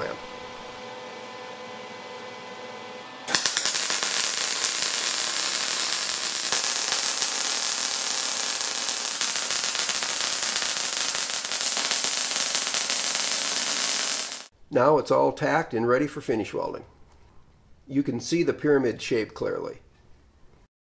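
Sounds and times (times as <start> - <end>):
welding arc crackling: 3.3 - 14.5.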